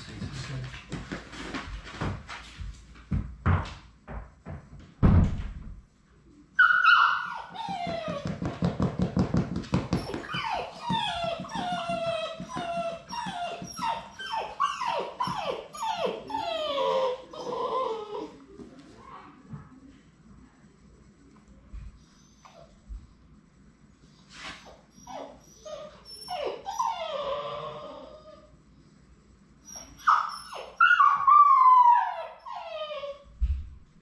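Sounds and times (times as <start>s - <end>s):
puppies whining and yelping: 6.6s - 8.5s, 9.9s - 18.4s, 24.6s - 28.5s, 29.6s - 33.2s.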